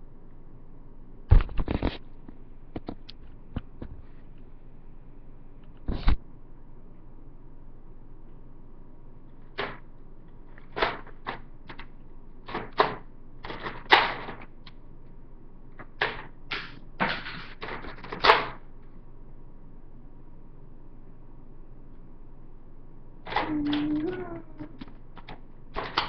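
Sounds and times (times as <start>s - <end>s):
sharp clicks: 24.8s - 26.0s.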